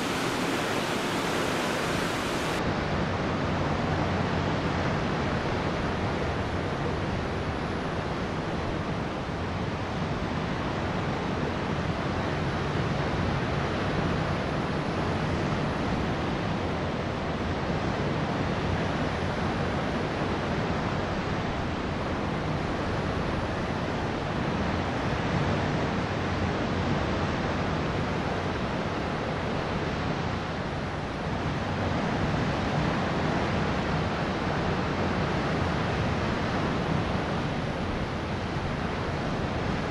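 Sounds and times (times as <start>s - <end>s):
low steady hum: 0.0s - 2.6s
sea waves: 0.0s - 2.6s
wind: 0.0s - 39.9s.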